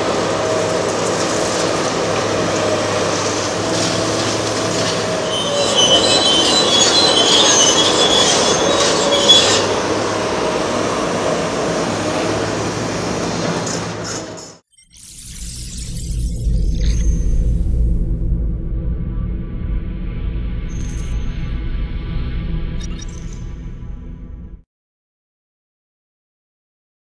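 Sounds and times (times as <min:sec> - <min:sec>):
excavator engine droning: 0:00.0 - 0:14.6
high-pitched metallic squealing: 0:00.5 - 0:17.6, 0:20.7 - 0:21.6.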